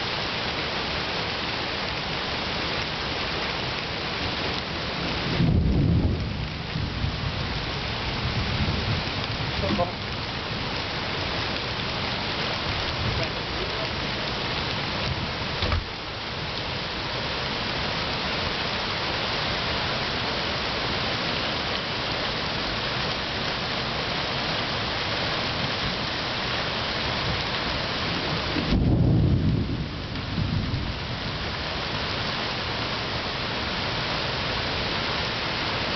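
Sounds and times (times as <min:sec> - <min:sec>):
heavy rain on leaves and ground: 0:00.0 - 0:35.9
deep rumble of thunder: 0:05.1 - 0:10.1, 0:28.4 - 0:31.4.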